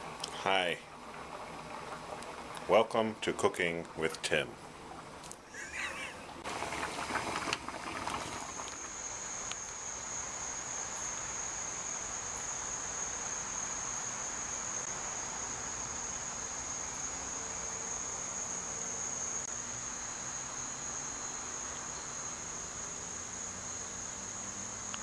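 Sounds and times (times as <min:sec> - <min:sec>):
faint hiss: 0:00.0 - 0:25.0
shrill insect drone: 0:05.5 - 0:06.2, 0:08.5 - 0:25.0.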